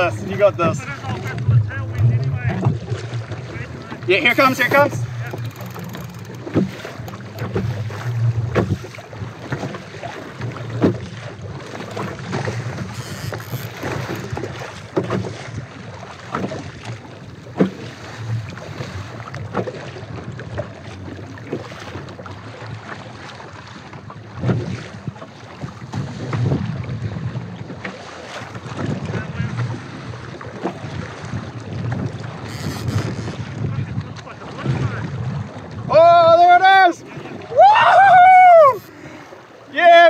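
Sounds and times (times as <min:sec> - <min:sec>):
water slapping against hull: 0:00.0 - 0:40.0
wind on microphone: 0:24.4 - 0:27.7, 0:28.6 - 0:36.4.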